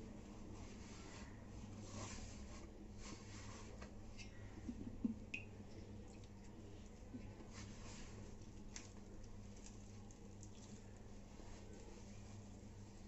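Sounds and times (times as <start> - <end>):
dough rubbing in steel bowl: 0.2 - 4.1.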